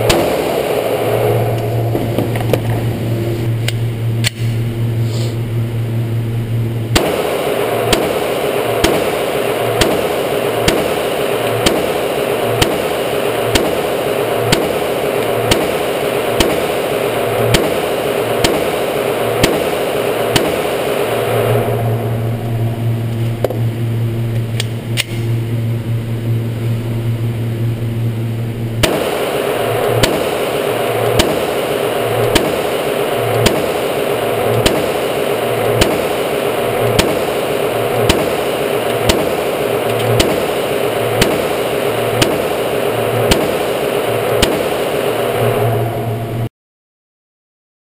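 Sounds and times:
pistol shots: 0.0 - 0.6, 6.9 - 21.1, 28.8 - 45.2.

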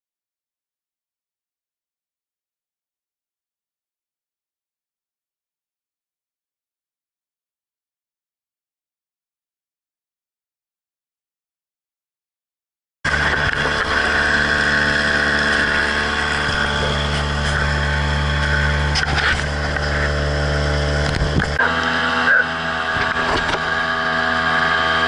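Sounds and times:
outboard motor running: 13.1 - 25.0.

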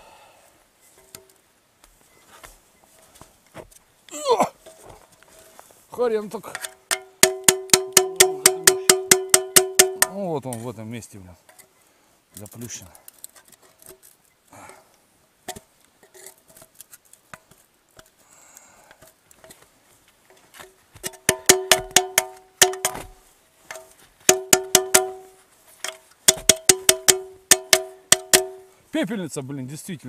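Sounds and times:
knife prying at metal container: 6.6 - 10.2, 21.1 - 23.1, 23.7 - 25.2, 25.9 - 28.6
ringing metal-on-metal strikes: 6.6 - 10.3, 21.2 - 25.4, 26.0 - 28.7
light scraping and ticks: 10.4 - 21.2.

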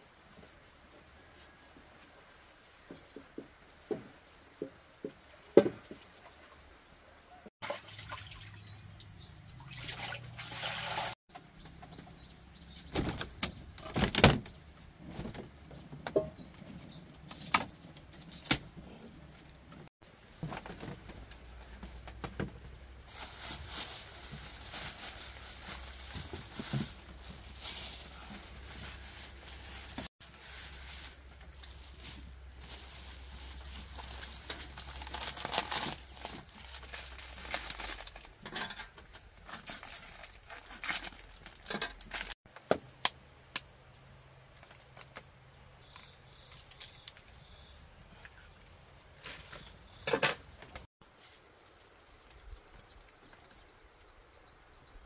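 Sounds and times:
birds chirping faintly: 8.2 - 10.6, 11.3 - 19.9, 42.5 - 50.9
plastic bags rustling: 20.2 - 42.4
pots and containers clattering: 38.4 - 39.2, 50.0 - 50.5.

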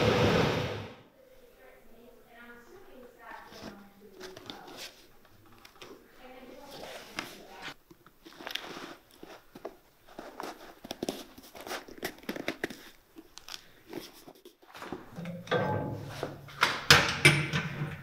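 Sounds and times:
leather boot crunching and creaking: 6.8 - 14.3.

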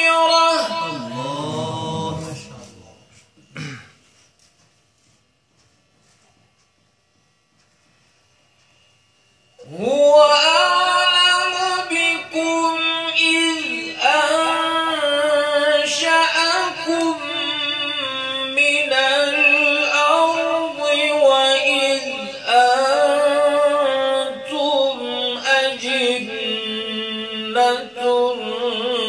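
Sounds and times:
man reciting melodic chant: 0.0 - 3.2, 9.6 - 29.0.

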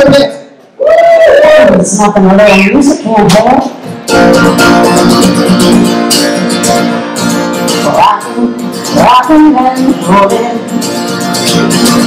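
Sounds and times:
acoustic guitar strumming chords: 3.8 - 12.0.

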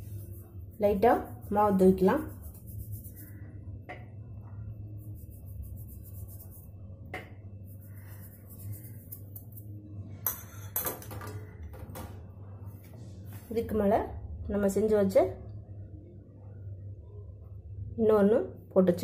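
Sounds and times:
faint rustling of flour: 0.0 - 6.9, 7.5 - 10.3
steady low hum: 0.0 - 19.0.

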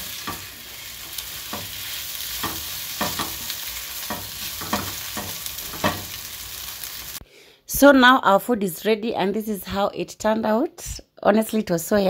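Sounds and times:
spatula scraping pan: 0.0 - 7.2
vegetables sizzling in hot oil: 0.0 - 7.2.

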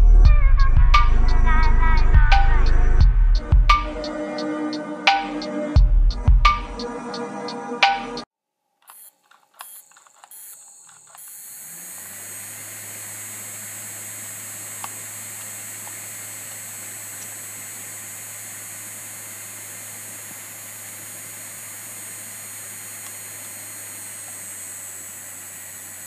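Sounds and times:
model jet ducted fan running: 9.6 - 26.0.

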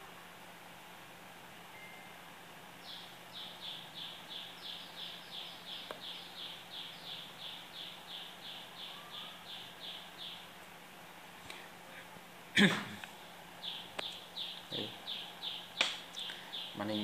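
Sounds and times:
faint low hum: 0.0 - 17.0
bird chirping: 2.8 - 10.6, 13.2 - 17.0.

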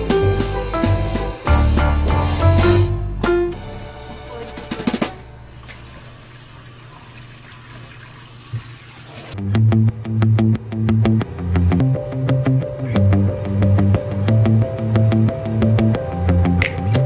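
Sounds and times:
background music with drum beat: 0.0 - 5.4
tap water running into bowl: 5.6 - 9.4.

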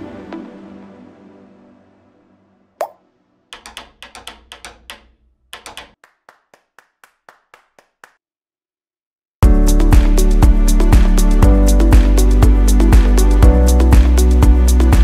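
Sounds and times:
stick clicks: 2.8 - 6.0
dry claps: 3.6 - 8.2
electronic track with beat: 9.4 - 15.0.

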